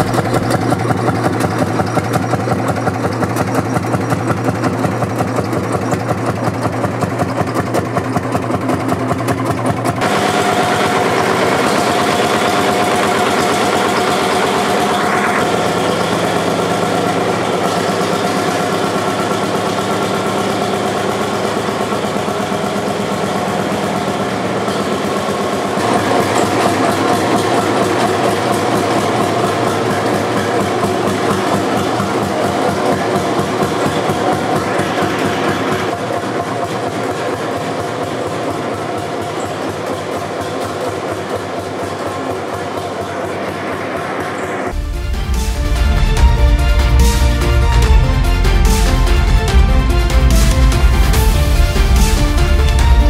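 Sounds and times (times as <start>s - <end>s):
tractor engine idling: 0.0s - 53.0s.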